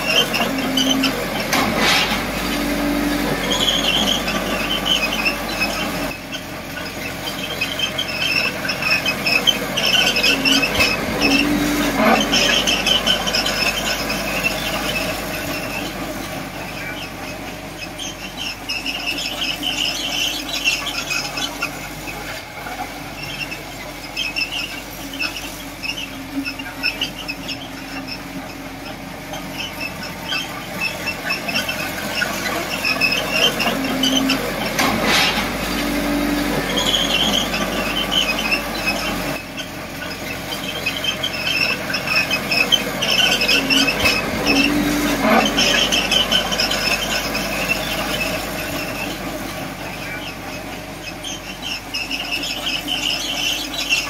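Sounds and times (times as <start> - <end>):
crawler tracks squeaking: 0.0 - 54.0
diesel engine running: 0.0 - 54.0
metallic clanks: 32.2 - 35.9.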